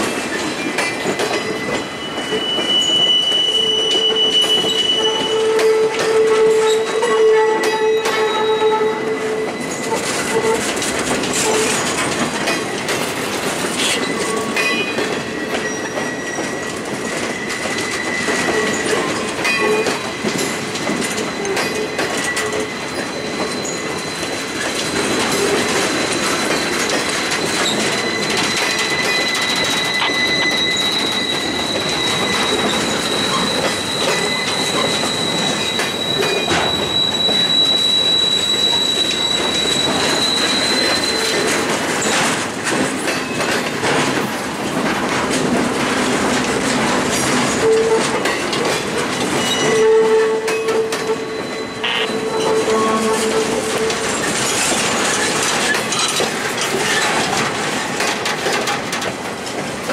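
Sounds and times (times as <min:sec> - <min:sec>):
rail clicks and clacks: 0:00.0 - 0:59.9
steel wheels rumbling on rails: 0:00.0 - 0:59.9
high wheel squeal: 0:01.3 - 0:12.0, 0:13.8 - 0:20.6, 0:21.2 - 0:42.2, 0:49.3 - 0:57.2.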